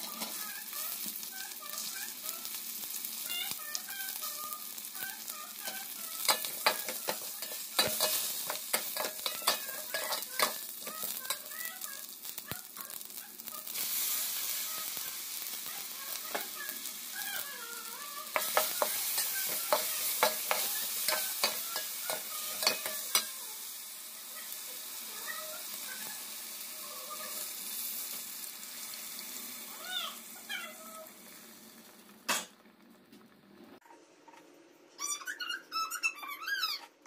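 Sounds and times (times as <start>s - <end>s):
food sizzling in a pot: 0.0s - 33.8s
spatula scraping a pot: 5.8s - 11.4s, 18.3s - 23.3s.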